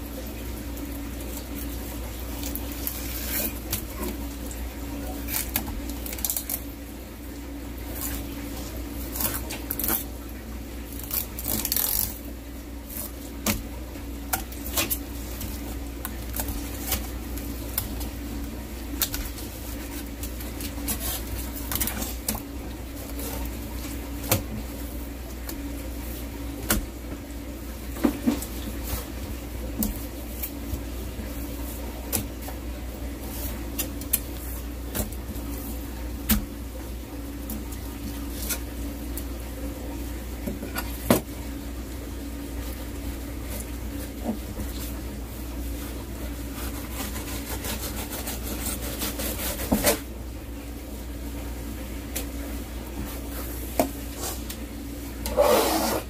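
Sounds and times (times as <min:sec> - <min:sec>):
low machine hum: 0:00.0 - 0:56.0.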